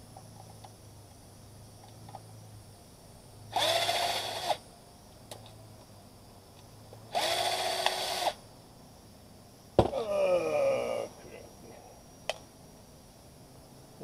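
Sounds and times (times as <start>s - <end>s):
cordless drill spinning up: 3.5s - 4.6s, 7.1s - 8.4s.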